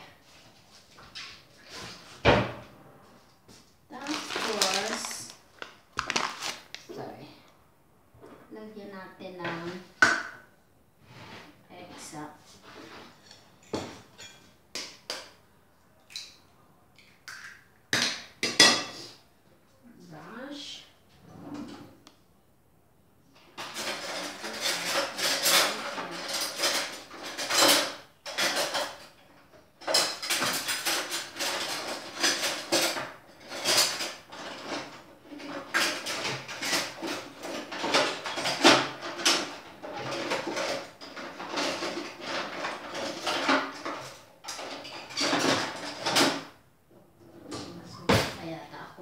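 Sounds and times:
utensil scraping and clinking bowl: 0:23.6 - 0:29.2.

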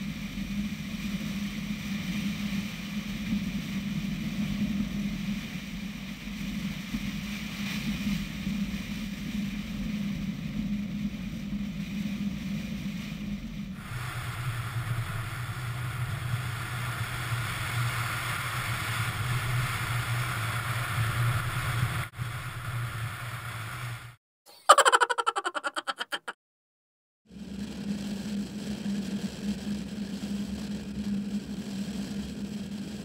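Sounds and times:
wind and road noise: 0:11.9 - 0:24.2
car engine drone: 0:14.2 - 0:24.2.

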